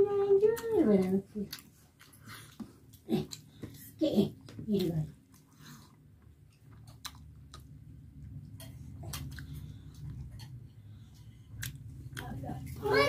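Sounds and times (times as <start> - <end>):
low steady hum: 0.0 - 13.0
person chewing food: 0.6 - 4.6, 5.2 - 12.8
mouth clicks and smacks: 6.6 - 7.8.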